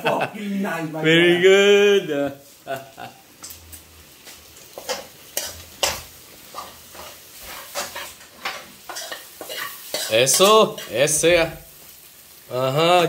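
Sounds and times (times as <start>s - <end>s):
food sizzling in a pan: 0.0s - 13.0s
metal spoon scraping a frying pan: 4.7s - 11.1s.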